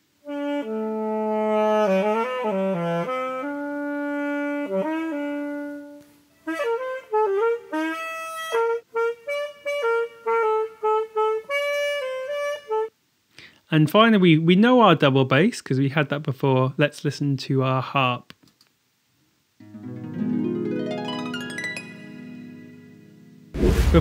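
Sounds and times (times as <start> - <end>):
saxophone solo melody: 0.2 - 12.9.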